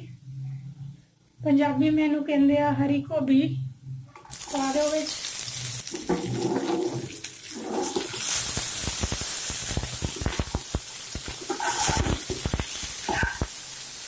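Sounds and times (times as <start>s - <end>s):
broccoli sizzling in oil: 4.3s - 14.0s
metal spatula scraping wok: 11.3s - 13.4s.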